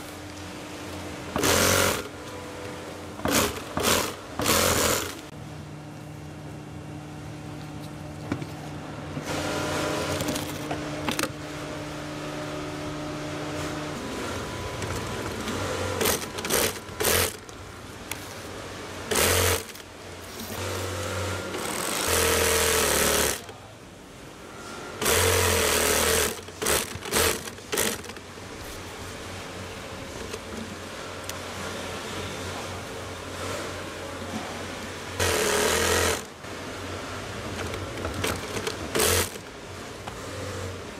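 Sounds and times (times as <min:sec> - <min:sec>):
steady low hum: 0:00.0 - 0:25.6
industrial sewing machine stitching: 0:01.4 - 0:02.1, 0:03.3 - 0:05.3, 0:14.1 - 0:17.5, 0:19.1 - 0:19.9, 0:20.6 - 0:23.5, 0:25.0 - 0:28.2, 0:35.2 - 0:36.4, 0:37.6 - 0:39.5.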